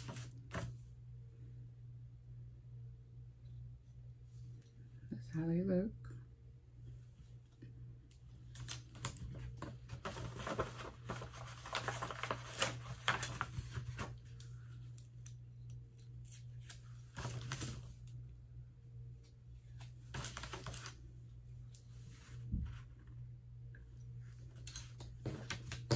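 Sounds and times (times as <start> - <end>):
paper rustling: 0.0 - 0.7, 8.5 - 14.5, 16.2 - 18.0, 19.7 - 21.0
steady low hum: 0.0 - 25.9.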